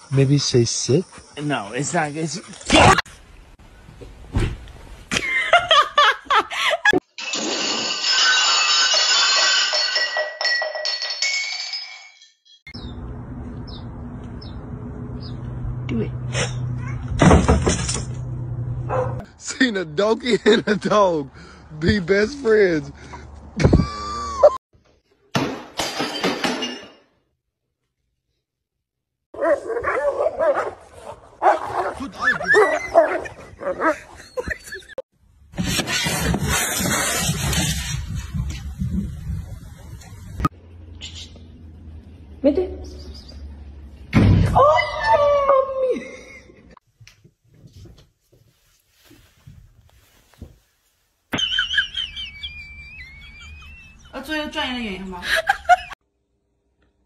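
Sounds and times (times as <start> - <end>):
ringing metal clatter: 7.4 - 12.6.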